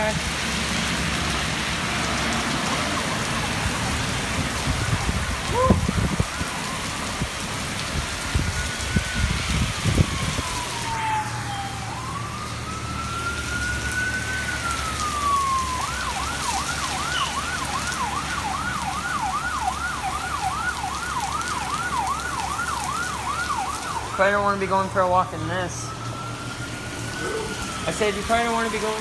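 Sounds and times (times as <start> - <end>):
heavy rain hissing: 0.0 - 18.0, 23.8 - 29.0
emergency vehicle siren: 0.0 - 29.0.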